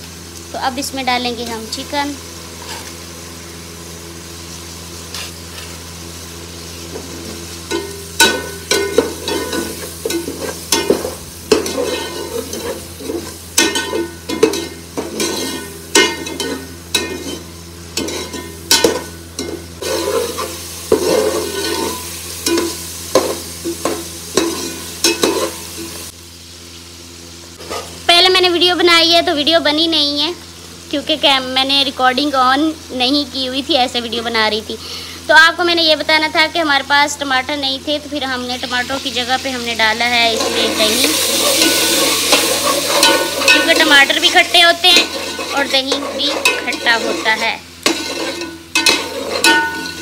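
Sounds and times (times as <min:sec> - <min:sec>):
meat sizzling in hot oil: 0:00.0 - 0:50.0
metal spoon scraping a pot: 0:07.7 - 0:25.6, 0:40.2 - 0:50.0.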